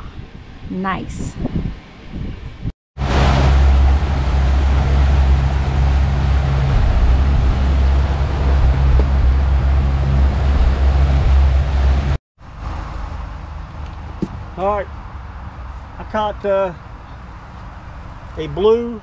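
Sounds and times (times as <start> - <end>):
wind rushing: 0.0 - 12.2
churning water: 3.0 - 12.2
outboard motor running: 3.0 - 12.2.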